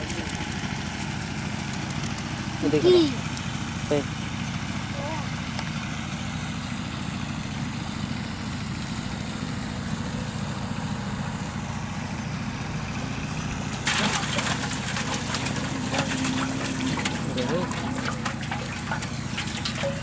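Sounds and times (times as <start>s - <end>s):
fish splashing at water surface: 13.0s - 20.0s.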